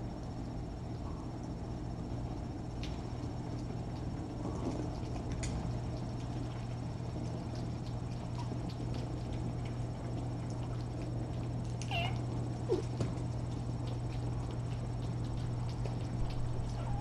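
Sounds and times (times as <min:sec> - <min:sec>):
steady low hum: 0:00.0 - 0:17.0
faint scattered ticks: 0:00.8 - 0:17.0
kitten meowing: 0:11.8 - 0:12.2.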